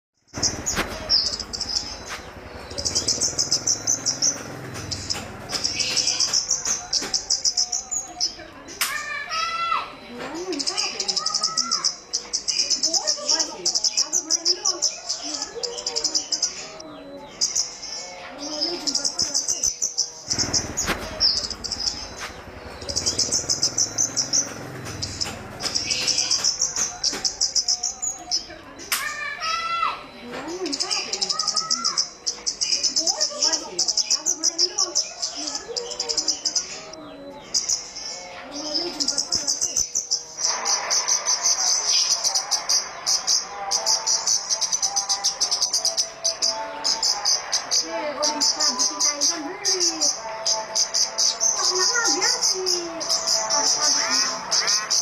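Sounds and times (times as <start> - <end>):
songbird chattering trills: 0.3 - 9.4, 10.4 - 29.6, 30.6 - 55.0
sharp clicks: 3.4 - 7.2, 20.4 - 27.4.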